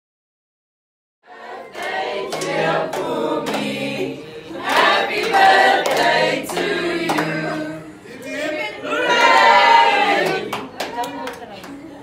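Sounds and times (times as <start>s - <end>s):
group singing in chorus: 1.2s - 10.8s
hand claps: 1.7s - 4.0s, 4.7s - 7.4s, 10.2s - 11.8s.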